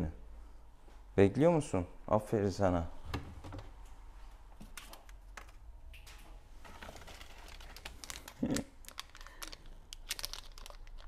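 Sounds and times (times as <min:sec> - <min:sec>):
crinkling and rustling: 0:04.6 - 0:11.0.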